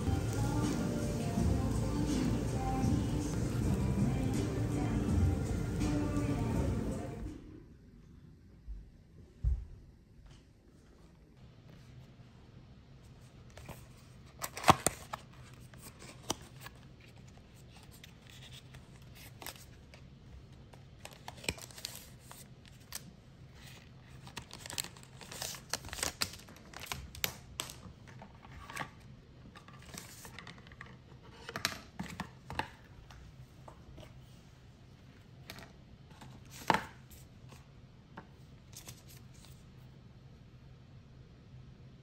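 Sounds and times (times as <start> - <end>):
packaging rustling and crinkling: 13.6 - 29.0.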